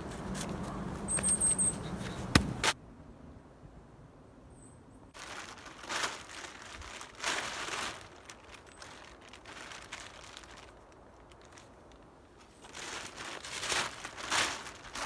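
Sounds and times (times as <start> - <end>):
plastic tarp crinkling: 5.2 - 15.0.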